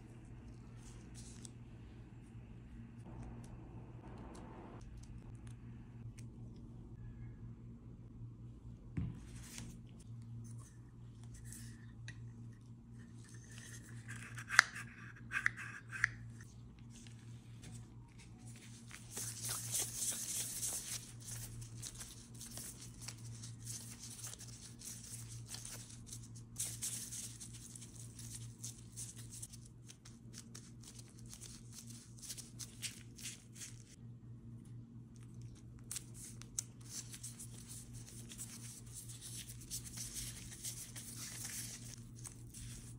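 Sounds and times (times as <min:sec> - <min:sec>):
steady low hum: 0:00.0 - 0:42.9
plastic gloves and wrap crinkling: 0:16.5 - 0:34.0, 0:35.1 - 0:42.9.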